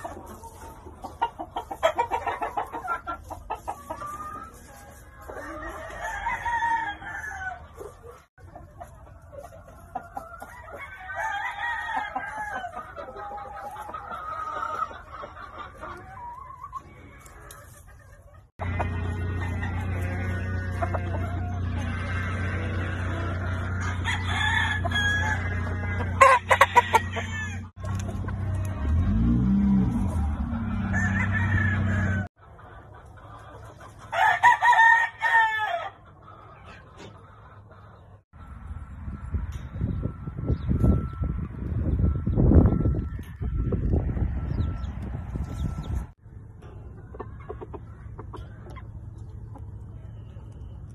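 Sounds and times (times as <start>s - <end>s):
chicken clucking: 0.0s - 50.9s
rooster crowing: 5.8s - 7.6s, 10.8s - 12.7s, 23.8s - 27.7s, 30.7s - 32.3s.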